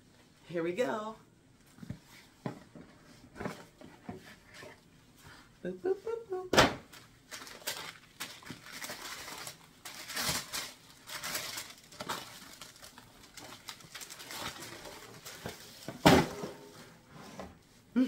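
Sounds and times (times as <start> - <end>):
tissue paper rustling: 7.0 - 16.0.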